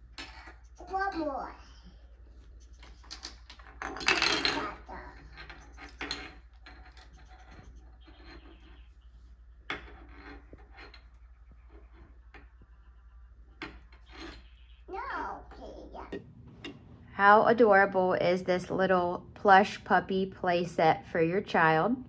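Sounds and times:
plastic toys clattering on wood: 0:00.0 - 0:01.2, 0:02.7 - 0:08.9, 0:13.5 - 0:14.5.

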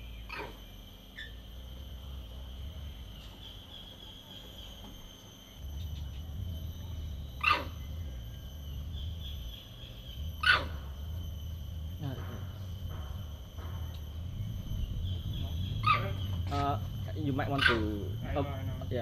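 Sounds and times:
monkey calls: 0:00.2 - 0:01.4, 0:05.8 - 0:13.0, 0:14.4 - 0:19.0.

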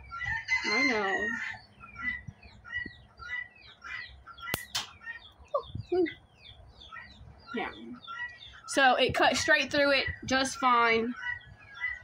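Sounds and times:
small birds chirping: 0:00.0 - 0:12.0
chicken clucking: 0:00.1 - 0:08.7
clippers snapping: 0:04.5 - 0:04.9.

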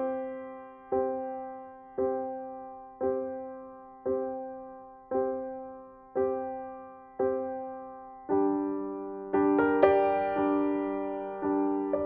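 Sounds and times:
piano chords ringing: 0:00.0 - 0:12.0.

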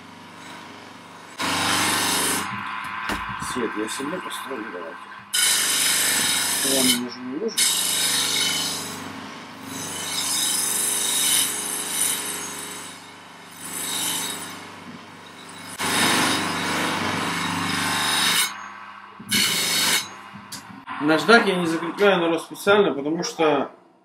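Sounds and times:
knife blade on polishing wheel: 0:05.3 - 0:09.0, 0:09.6 - 0:14.5, 0:15.2 - 0:18.7, 0:19.3 - 0:20.7.

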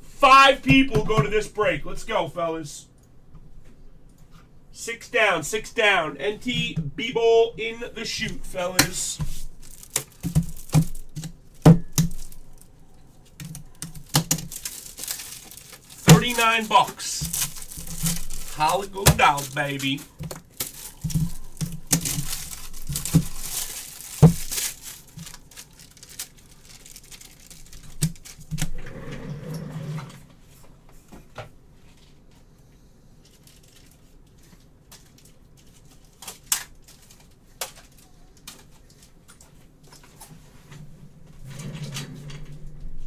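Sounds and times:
wrapping crinkling and rustling: 0:08.0 - 0:28.8, 0:33.1 - 0:40.6.

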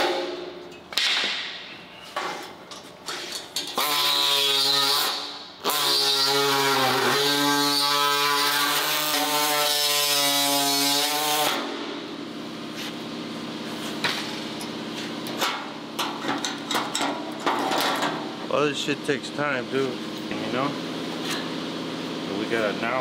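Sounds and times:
workshop noise: 0:00.0 - 0:23.0
pneumatic drill drilling sheet metal: 0:03.2 - 0:11.8.

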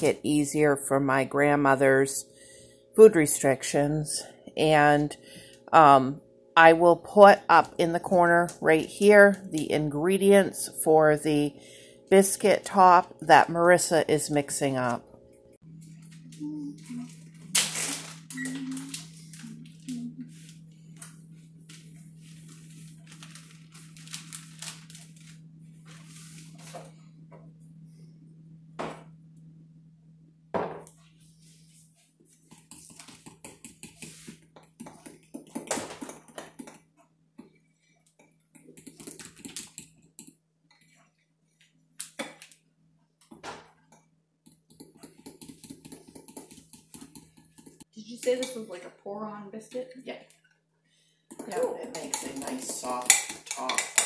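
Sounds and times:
steady low hum: 0:00.0 - 0:41.5
spoon clinking and scraping in glass bowl: 0:51.4 - 0:54.0.

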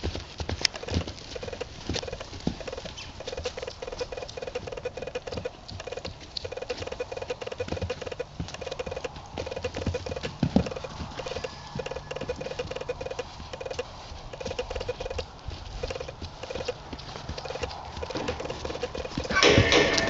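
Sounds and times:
horse hoofbeats trotting: 0:00.0 - 0:20.0
rapid rattling pulse: 0:00.7 - 0:15.2.

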